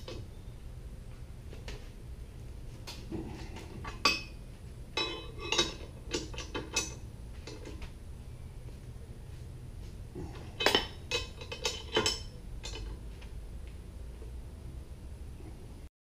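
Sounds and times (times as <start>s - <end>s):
wrench clinking against metal: 5.0s - 7.8s, 10.6s - 13.0s.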